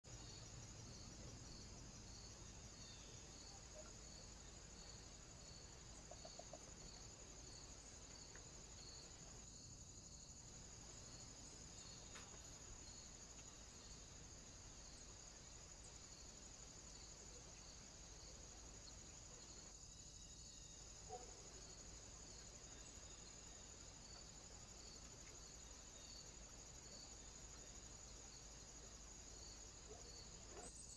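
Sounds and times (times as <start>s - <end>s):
cricket trill: 0.1s - 30.9s
faint ticks: 8.0s - 9.2s, 12.0s - 12.5s, 25.0s - 25.6s.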